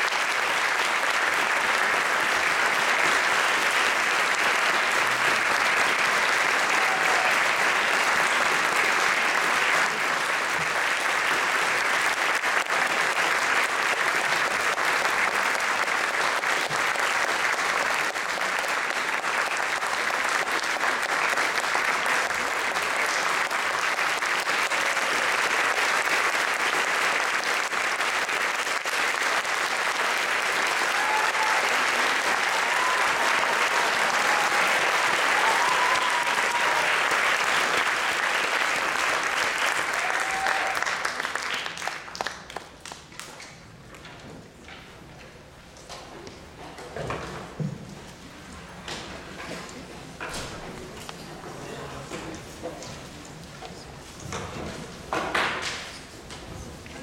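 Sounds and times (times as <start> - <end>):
audience applauding: 0.0 - 43.6.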